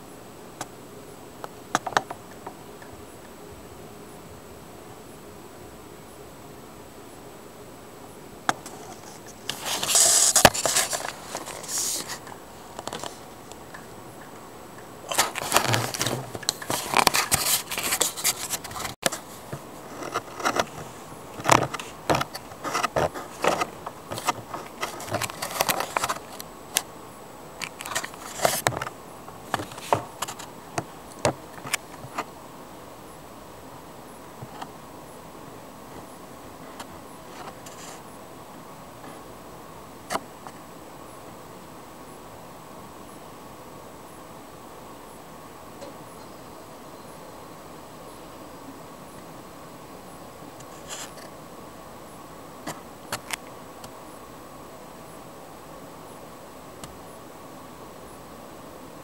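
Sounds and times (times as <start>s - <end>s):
camera handling scrapes and rustles: 8.6s - 13.2s, 15.1s - 26.4s, 27.6s - 30.5s.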